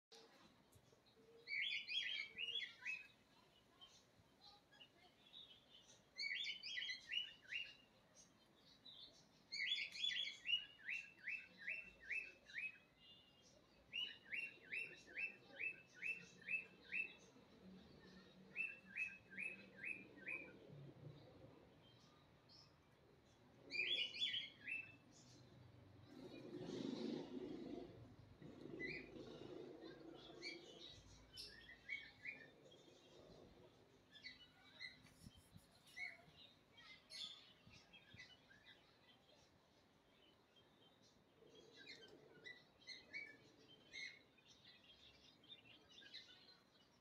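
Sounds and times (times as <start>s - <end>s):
small bird chirping: 0.1s - 47.0s.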